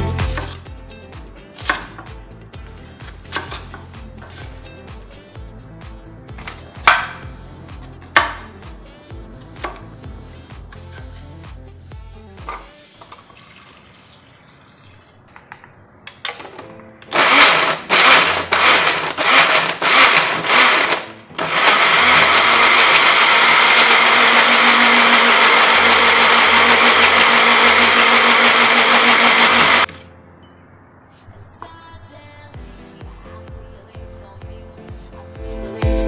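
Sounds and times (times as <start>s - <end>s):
electric blender grinding: 17.0s - 29.9s.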